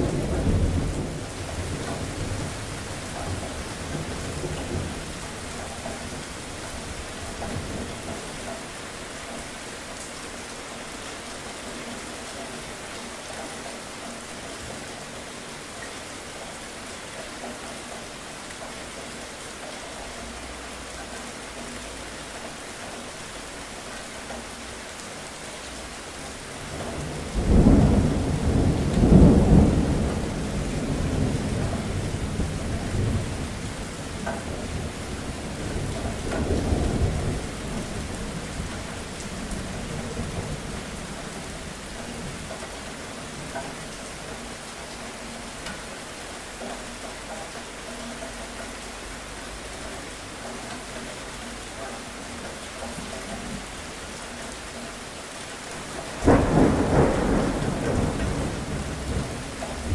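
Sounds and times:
thunder rumbling: 0.0s - 8.3s, 26.7s - 44.3s, 55.8s - 59.9s
steady rain: 0.0s - 59.9s.

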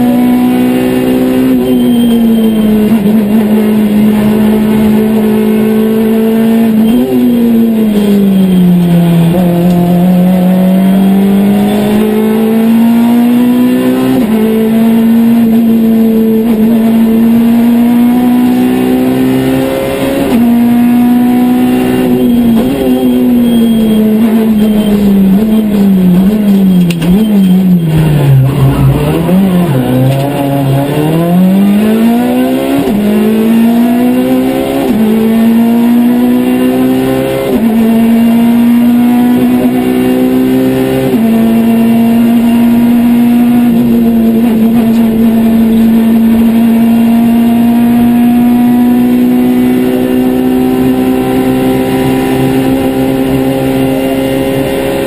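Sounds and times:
rally car engine accelerating: 0.0s - 55.0s
gear upshifts: 21.8s - 33.7s.

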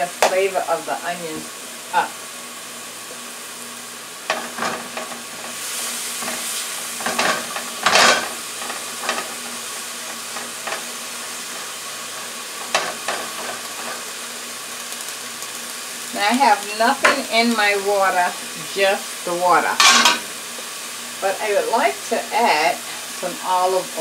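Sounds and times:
onions sizzling in oil: 0.0s - 24.0s
spatula scraping pan: 4.3s - 14.1s, 19.7s - 20.3s.

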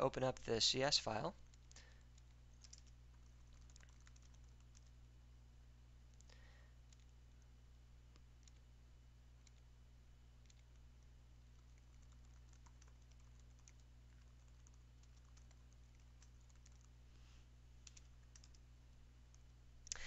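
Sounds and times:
low steady hum: 0.0s - 20.0s
computer keyboard typing: 1.4s - 4.9s, 6.9s - 7.1s, 8.4s - 8.6s, 9.4s - 9.6s, 10.4s - 10.8s, 11.5s - 16.9s, 17.8s - 18.6s.

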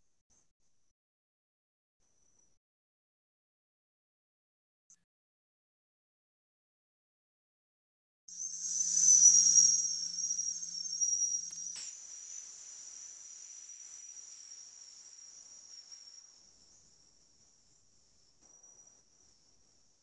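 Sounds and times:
high-pitched ringing tone: 8.3s - 16.9s
sharp click: 11.4s - 12.0s.

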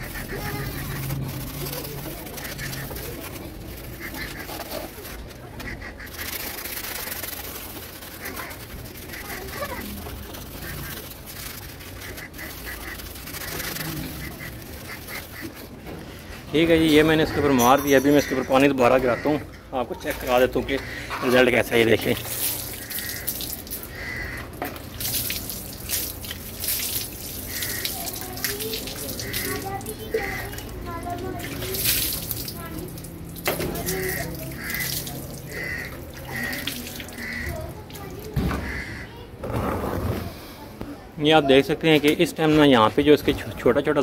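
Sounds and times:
scouring pad scrubbing metal: 0.0s - 15.7s, 20.2s - 38.1s
water splashing on metal: 0.0s - 19.2s, 20.0s - 39.0s.

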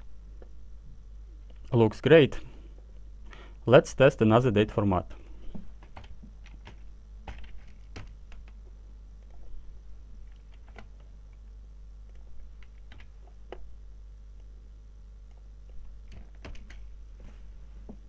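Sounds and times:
typing on computer keyboard: 5.8s - 8.6s, 10.3s - 10.9s, 12.1s - 13.1s, 16.1s - 16.8s.

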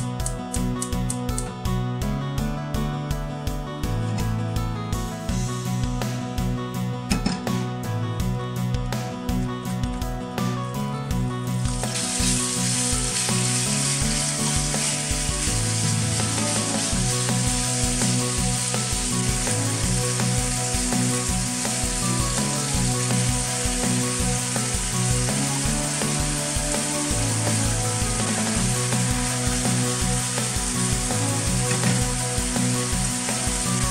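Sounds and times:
background music with bass beat: 0.0s - 33.9s
chicken sizzling in hot oil: 11.6s - 33.9s.

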